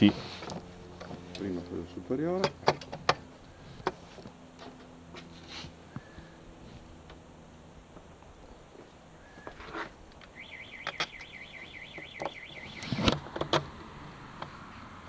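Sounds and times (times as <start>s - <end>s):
screwdriver and metal parts clicking: 10.2s - 11.3s.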